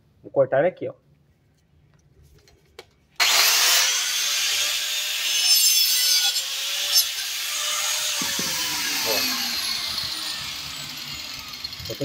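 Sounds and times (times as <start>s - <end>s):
angle grinder motor whine: 3.2s - 5.5s, 6.2s - 12.0s.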